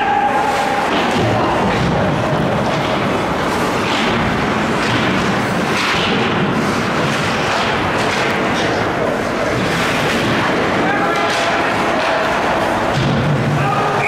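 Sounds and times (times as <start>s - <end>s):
ice hockey game din: 0.0s - 14.0s.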